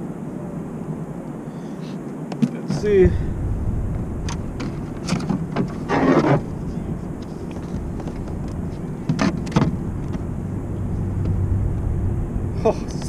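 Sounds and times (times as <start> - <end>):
steady low rumble: 2.7 - 13.0
rustling scrape: 3.9 - 10.2.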